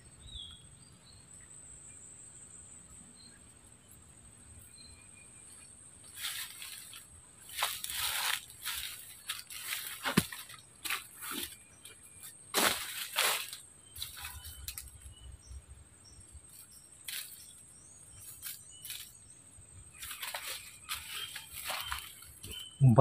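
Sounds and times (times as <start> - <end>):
dry leaves rustling and crunching: 6.1 - 11.6, 12.5 - 15.2, 17.1 - 19.2, 20.0 - 22.6
faint high chirps: 13.0 - 23.0.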